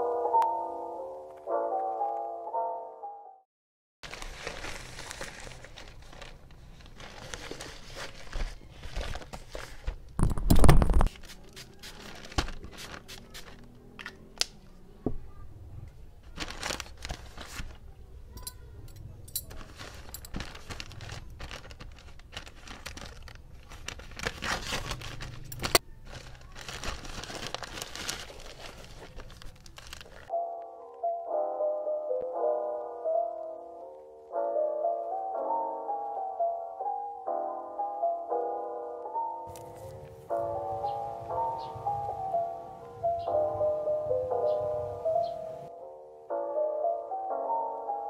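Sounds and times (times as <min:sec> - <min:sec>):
plastic bags crinkling: 0:04.0 - 0:13.7, 0:16.2 - 0:17.9, 0:19.4 - 0:30.3.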